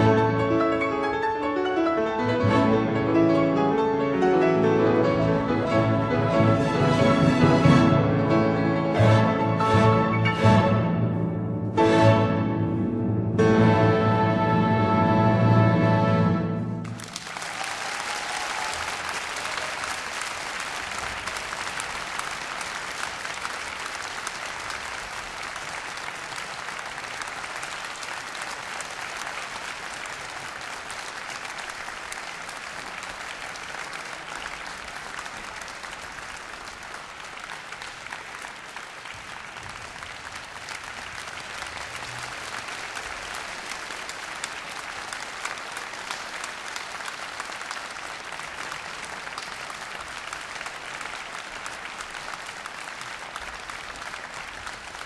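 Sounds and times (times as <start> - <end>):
large audience applauding: 16.6 - 55.0.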